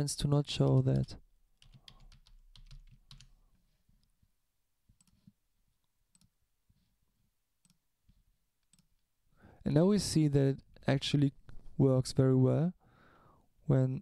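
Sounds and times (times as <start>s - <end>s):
faint keyboard typing: 0.5s - 4.2s, 4.9s - 6.4s, 7.6s - 9.1s
isolated keyboard clicks: 0.6s - 3.3s.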